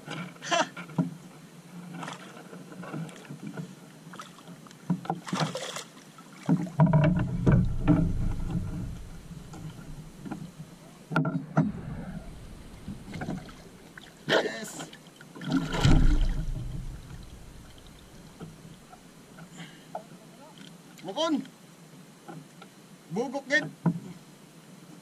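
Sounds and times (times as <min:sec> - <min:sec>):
water splashing against boat hull: 0:01.9 - 0:19.1
knocks on boat: 0:06.5 - 0:10.5, 0:11.2 - 0:14.1, 0:15.5 - 0:18.8
low rumbling: 0:06.9 - 0:10.9, 0:11.5 - 0:14.3, 0:15.4 - 0:19.1.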